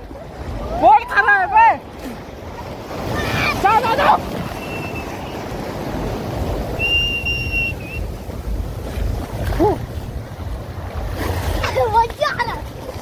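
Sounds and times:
surf washing in shallow water: 0:00.0 - 0:13.0
high whistle note: 0:06.8 - 0:08.1.

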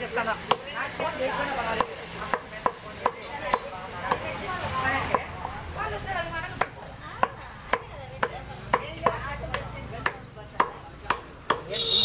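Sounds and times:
cleaver chopping on wooden block: 0:06.6 - 0:11.8.

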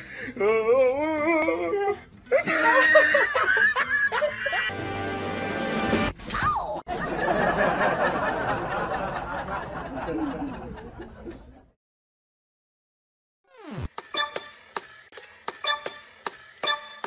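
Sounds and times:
people laughing: 0:02.3 - 0:04.7, 0:06.9 - 0:11.7.

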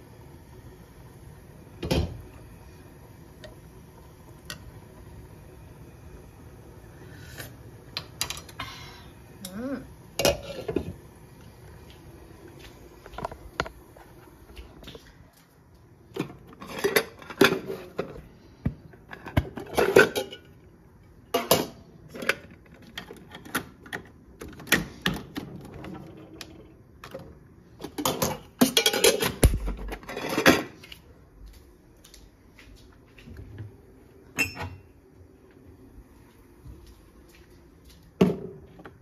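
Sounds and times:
metal lids and containers clattering: 0:10.2 - 0:11.0, 0:16.2 - 0:18.2, 0:19.1 - 0:20.6, 0:21.3 - 0:30.8.

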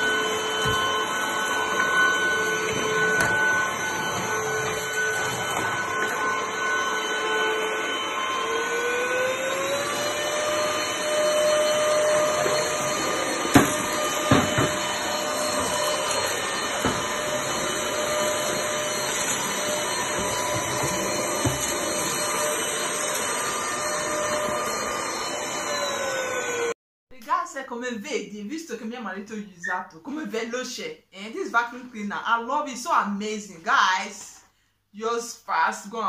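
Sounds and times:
stick vacuum cleaner whining: 0:00.0 - 0:26.8.

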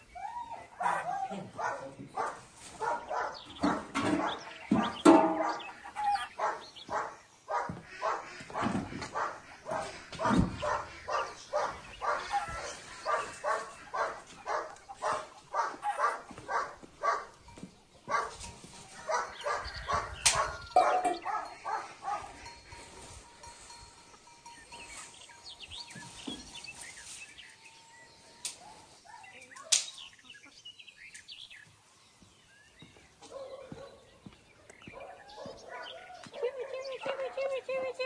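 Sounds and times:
dog barking: 0:00.8 - 0:04.4, 0:05.4 - 0:17.3, 0:18.1 - 0:18.4, 0:19.0 - 0:22.4, 0:28.6 - 0:29.5, 0:33.2 - 0:34.1, 0:34.9 - 0:37.6.

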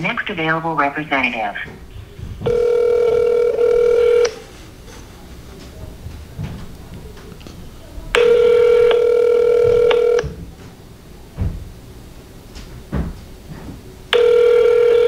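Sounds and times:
telephone ringback tone: 0:02.5 - 0:04.4, 0:08.2 - 0:10.3, 0:14.2 - 0:15.0.

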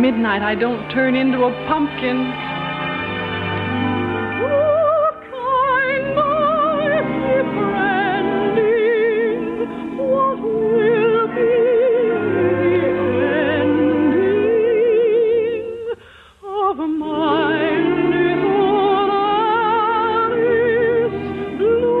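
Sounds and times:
musical accompaniment: 0:00.0 - 0:22.0
operatic singing with vibrato: 0:00.0 - 0:22.0.

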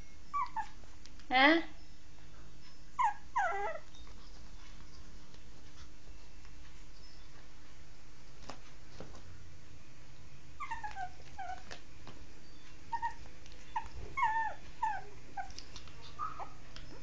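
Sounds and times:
dog whimpering: 0:00.3 - 0:00.8, 0:02.6 - 0:05.0, 0:10.6 - 0:11.8, 0:12.4 - 0:17.0.

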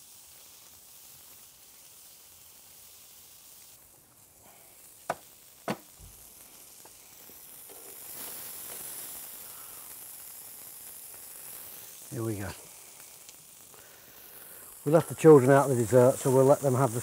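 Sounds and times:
fat dripping onto embers: 0:00.0 - 0:17.0
steak sizzling on grill: 0:00.0 - 0:17.0
sharp knocks: 0:05.1 - 0:05.8.

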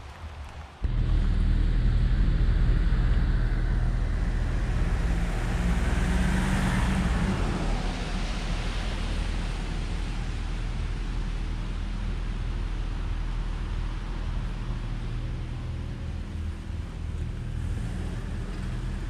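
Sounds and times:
low road rumble: 0:00.0 - 0:19.0
car passing by: 0:00.8 - 0:11.8.

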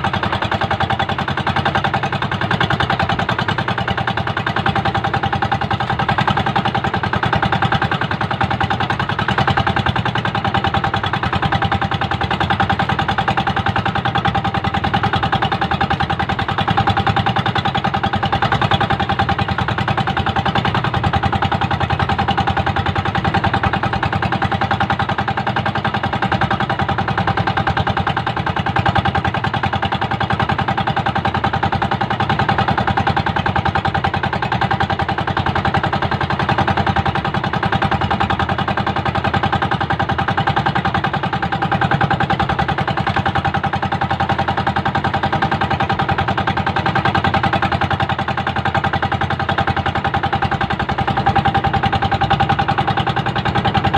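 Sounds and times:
small boat engine running: 0:00.0 - 0:53.9.

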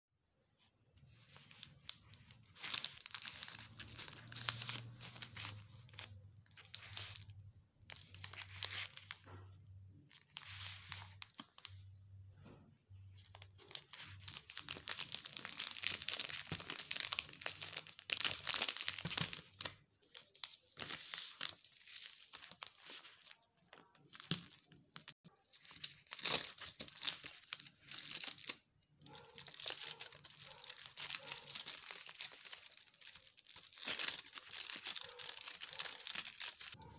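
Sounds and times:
chocolate wrapper crinkling and tearing: 0:01.2 - 0:11.9, 0:13.2 - 0:36.9
foil wrap being peeled: 0:01.5 - 0:07.3, 0:29.2 - 0:36.8.

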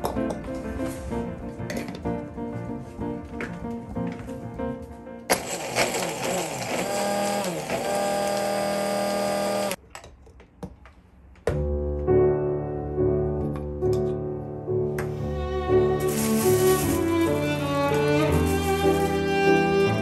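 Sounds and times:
background music: 0:00.0 - 0:05.3, 0:11.5 - 0:20.0
hand blender chopping: 0:05.3 - 0:09.8
bowed strings: 0:15.0 - 0:20.0.

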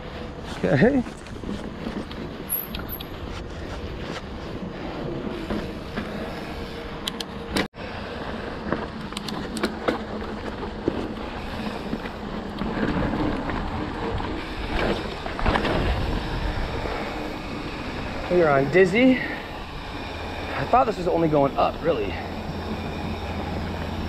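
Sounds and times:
bike tyres rumbling on dirt: 0:00.0 - 0:24.0
bike clicks and rattles: 0:00.1 - 0:24.0
wind on microphone: 0:11.0 - 0:24.0.

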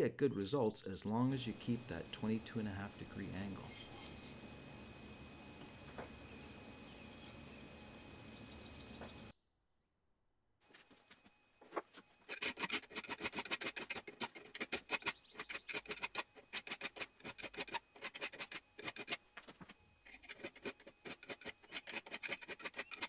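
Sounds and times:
file rasping on steel knife: 0:03.0 - 0:04.5, 0:12.3 - 0:19.2, 0:20.0 - 0:23.0.

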